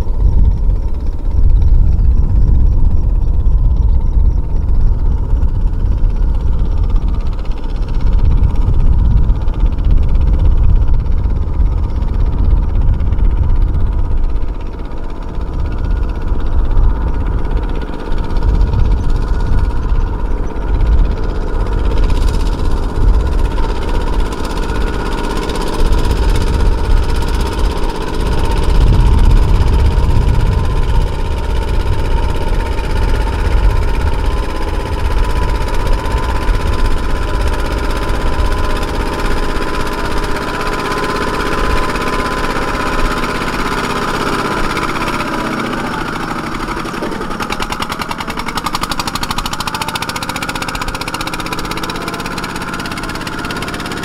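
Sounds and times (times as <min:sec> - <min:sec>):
diesel tractor engine chugging: 0:00.0 - 0:54.0.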